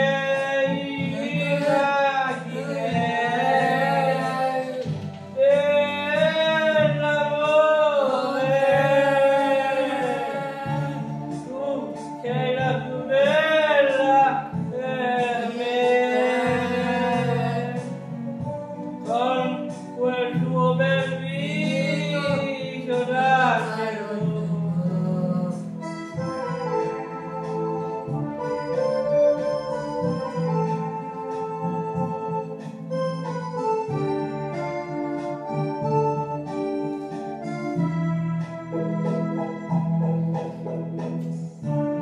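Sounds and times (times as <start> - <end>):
man singing: 0.0 - 18.2, 19.0 - 26.3
backing track: 0.0 - 42.0.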